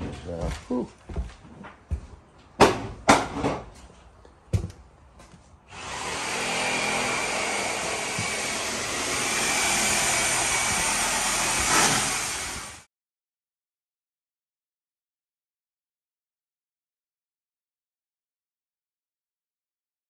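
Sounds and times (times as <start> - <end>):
whooshing motor running: 5.8 - 12.9.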